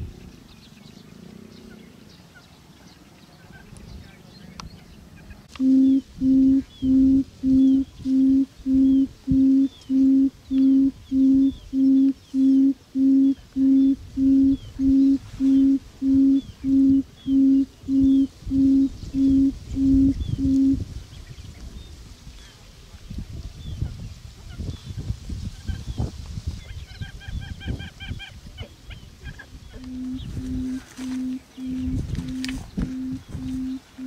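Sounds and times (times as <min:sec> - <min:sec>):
low bird hoot: 0:05.6 - 0:20.8, 0:29.7 - 0:34.0.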